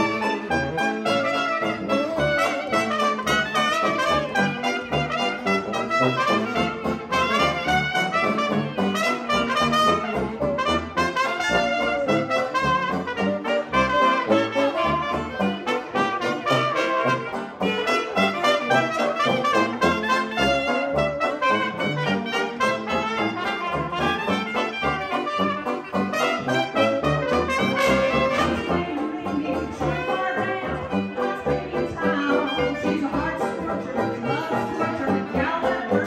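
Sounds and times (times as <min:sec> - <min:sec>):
jazz band playing: 0:00.0 - 0:36.0.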